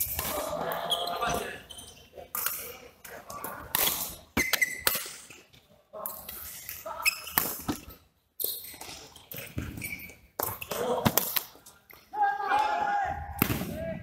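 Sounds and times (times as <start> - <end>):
shoes squeaking on court floor: 0.0 - 2.6, 3.8 - 5.6, 6.4 - 10.8.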